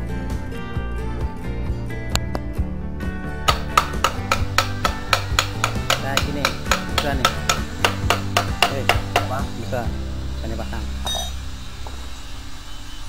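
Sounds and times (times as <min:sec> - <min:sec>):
background music sustained tones: 0:00.0 - 0:13.0
tool tapping on metal: 0:03.5 - 0:09.8, 0:11.0 - 0:12.0.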